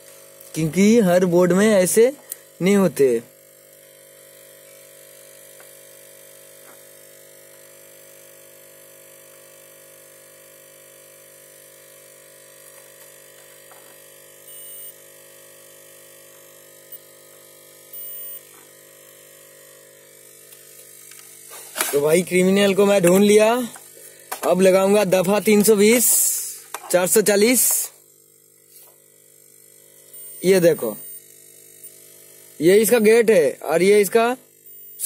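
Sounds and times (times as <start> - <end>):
low electrical hum: 11.4 - 35.0
multimeter beeping: 13.8 - 15.2, 16.8 - 17.2, 17.9 - 18.6, 29.8 - 32.1, 34.6 - 35.0.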